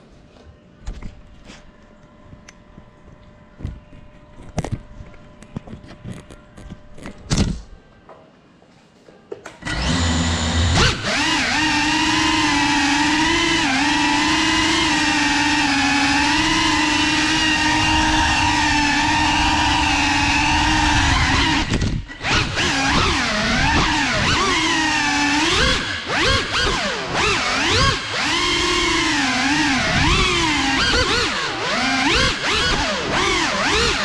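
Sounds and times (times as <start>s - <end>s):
drone motors buzzing: 9.6s - 34.0s.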